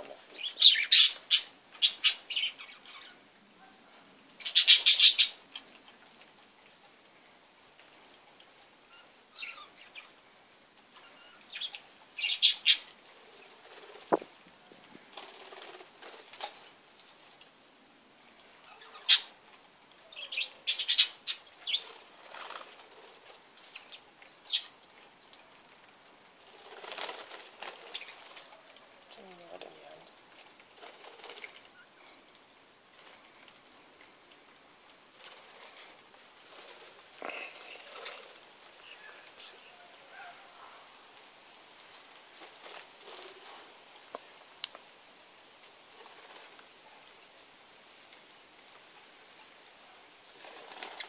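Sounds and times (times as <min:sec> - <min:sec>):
birds chirping: 0:00.0 - 0:03.2, 0:04.4 - 0:05.7, 0:11.0 - 0:14.3, 0:20.0 - 0:22.7, 0:27.6 - 0:30.1
birds flapping wings: 0:15.0 - 0:16.7, 0:21.9 - 0:23.7, 0:26.4 - 0:28.6, 0:30.3 - 0:31.7, 0:35.1 - 0:38.5, 0:41.9 - 0:43.8, 0:45.9 - 0:46.7, 0:50.3 - 0:51.0.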